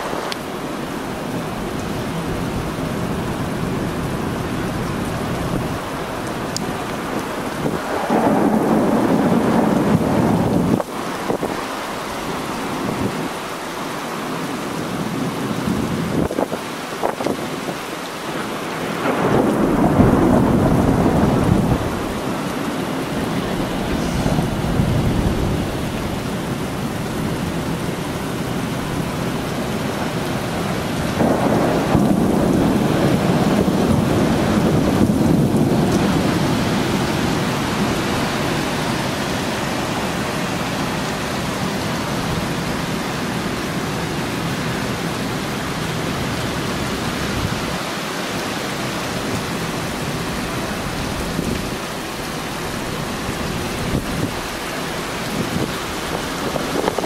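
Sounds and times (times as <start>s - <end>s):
heavy rain falling: 0.0s - 57.0s
thunder rumbling: 1.4s - 13.5s, 18.4s - 43.8s, 49.2s - 57.0s.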